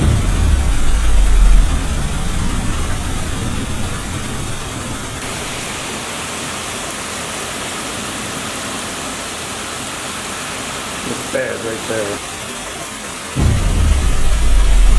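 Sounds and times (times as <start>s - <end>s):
low rumble of thunder: 0.0s - 5.8s, 13.4s - 14.9s
heavy rain pouring: 0.0s - 14.9s.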